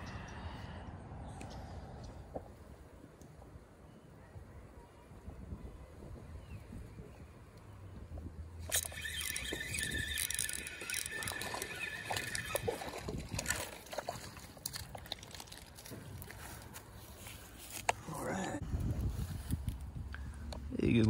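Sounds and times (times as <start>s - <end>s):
fishing reel whirring: 8.6s - 14.4s
water splashing: 8.7s - 16.4s.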